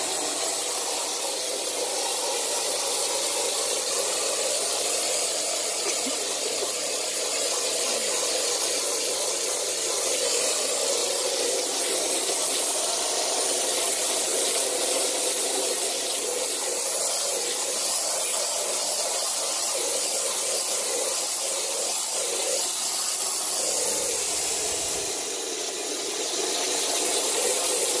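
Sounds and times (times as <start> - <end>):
water spraying onto carpet: 0.0 - 28.0.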